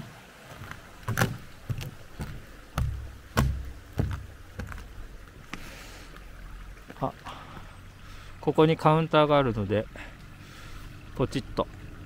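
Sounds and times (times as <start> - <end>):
faint steady hiss: 0.0 - 12.0
boot footsteps thumping: 0.5 - 5.6.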